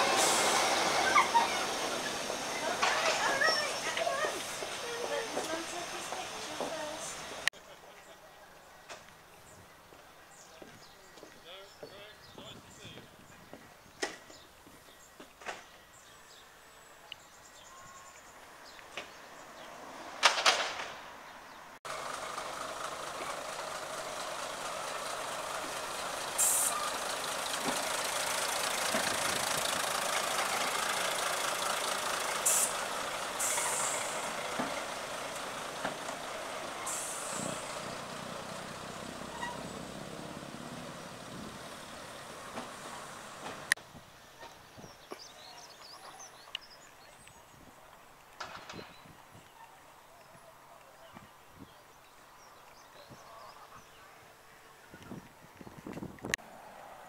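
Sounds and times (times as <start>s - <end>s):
air brake hisses: 0.0s - 1.2s, 26.4s - 27.0s, 32.4s - 34.5s, 36.8s - 37.8s
diesel railcar running past: 0.0s - 11.9s, 16.3s - 46.6s.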